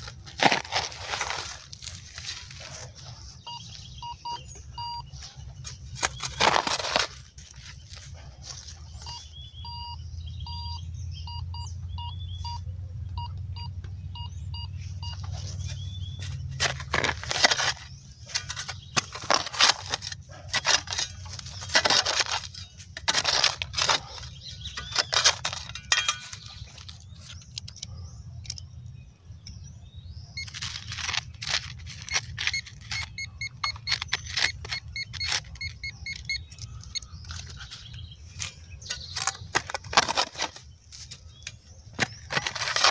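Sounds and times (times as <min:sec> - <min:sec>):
shovel digging into soil: 0:00.0 - 0:03.6, 0:05.6 - 0:09.1, 0:15.0 - 0:27.8, 0:30.4 - 0:42.9
metal detector beeping: 0:02.2 - 0:07.1, 0:09.0 - 0:16.4, 0:30.3 - 0:39.8.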